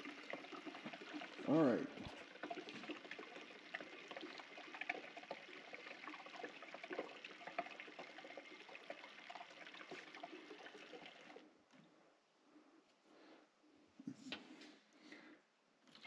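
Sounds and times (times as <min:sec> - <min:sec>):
liquid trickling through hose: 0:00.0 - 0:11.4.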